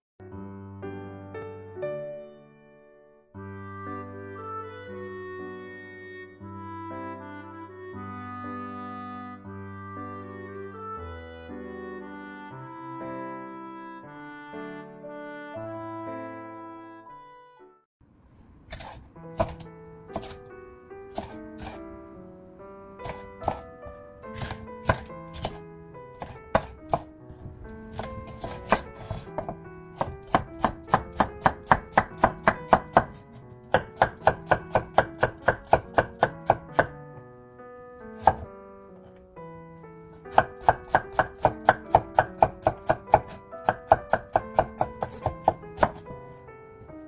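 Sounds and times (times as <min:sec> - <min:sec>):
knife chopping on wooden board: 0:18.7 - 0:20.4, 0:21.1 - 0:21.8, 0:23.0 - 0:23.7, 0:24.3 - 0:25.6, 0:26.2 - 0:27.1, 0:27.9 - 0:37.0, 0:38.2 - 0:38.5, 0:40.3 - 0:46.1.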